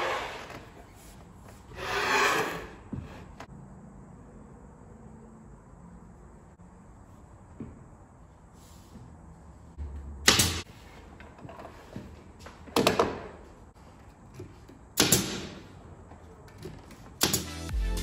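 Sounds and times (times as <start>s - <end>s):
pneumatic nail gun firing: 10.2s - 10.6s, 15.0s - 15.6s, 17.2s - 17.7s.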